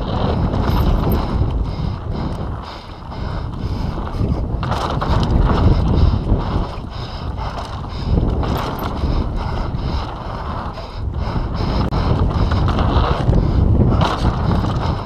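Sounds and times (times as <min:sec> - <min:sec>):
bike rattling and knocking: 0:00.0 - 0:15.0
tyres on a dirt trail: 0:00.0 - 0:15.0
wind noise on microphone: 0:00.0 - 0:15.0.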